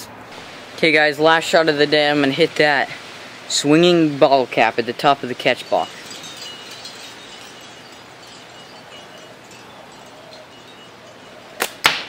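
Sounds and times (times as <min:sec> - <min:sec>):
slingshot snap: 0:11.6 - 0:12.0.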